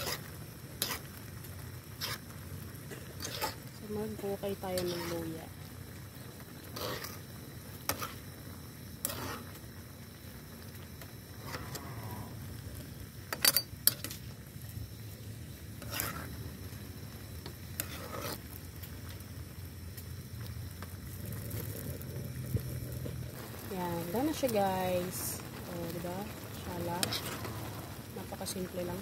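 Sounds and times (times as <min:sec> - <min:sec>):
utensils scraping and clinking pan: 0:00.0 - 0:01.2, 0:02.9 - 0:05.4, 0:06.7 - 0:07.2, 0:09.0 - 0:09.5, 0:15.8 - 0:16.4
stew simmering: 0:00.0 - 0:29.0.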